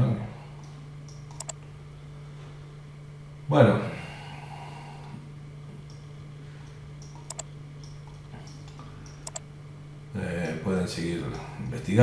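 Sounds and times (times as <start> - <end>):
low electrical hum: 0.0 - 12.0
computer mouse clicks: 0.6 - 1.6, 7.0 - 9.4.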